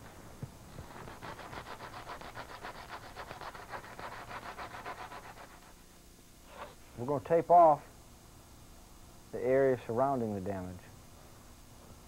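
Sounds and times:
sandpaper sanding metal: 0:00.8 - 0:05.8.

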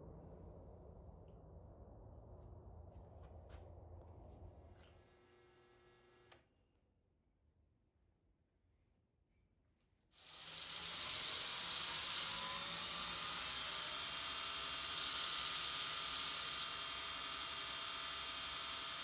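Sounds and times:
faint motor whine: 0:02.9 - 0:06.4, 0:10.2 - 0:19.0
belt grinder grinding: 0:10.2 - 0:19.0.

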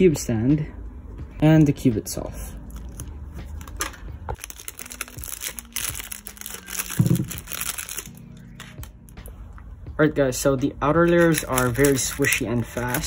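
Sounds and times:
plastic bag crinkling: 0:03.6 - 0:08.6, 0:11.1 - 0:13.0.

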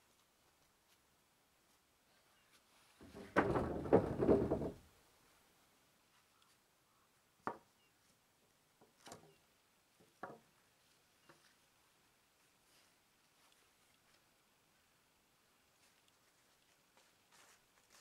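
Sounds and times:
wood knocking on wood: 0:03.0 - 0:04.8, 0:10.1 - 0:10.4
wooden boards clattering: 0:03.0 - 0:04.8.

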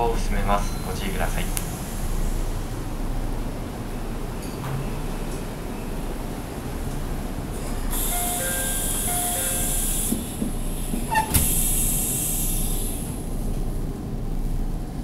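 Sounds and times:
compressed air hiss: 0:07.9 - 0:13.4.

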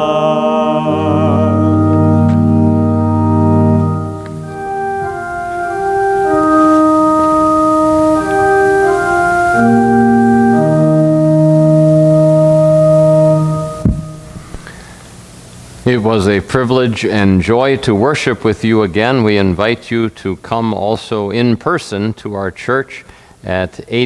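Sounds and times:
organ playing long held chords: 0:00.0 - 0:15.4.

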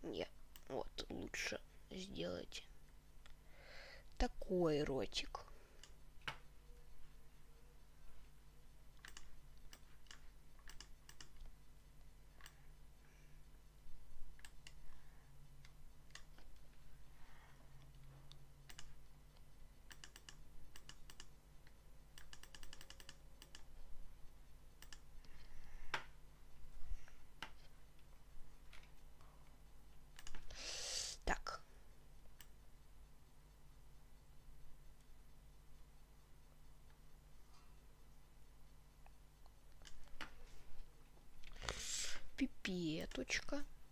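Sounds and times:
mouse and keyboard clicks: 0:09.0 - 0:11.5, 0:15.6 - 0:16.6, 0:18.7 - 0:21.4, 0:22.1 - 0:23.7, 0:24.8 - 0:26.1, 0:30.2 - 0:30.5.

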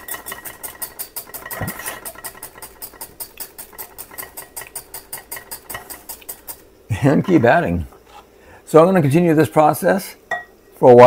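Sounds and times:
whisk ticking against glass bowl: 0:00.0 - 0:06.6.

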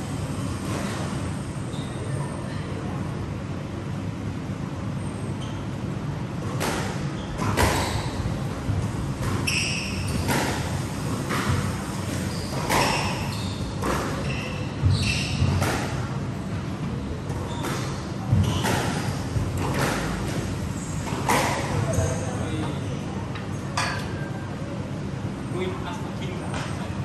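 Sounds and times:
steady low hum: 0:00.0 - 0:27.0
squash ball hits: 0:06.5 - 0:09.4
shoe squeaks on wooden floor: 0:09.3 - 0:10.5, 0:12.1 - 0:15.6, 0:17.3 - 0:19.3.

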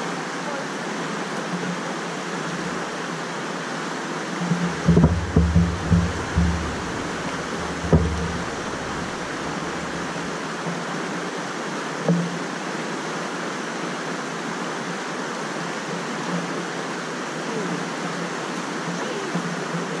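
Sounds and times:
flood water rushing: 0:00.0 - 0:20.0
dull thumps: 0:04.5 - 0:10.4.

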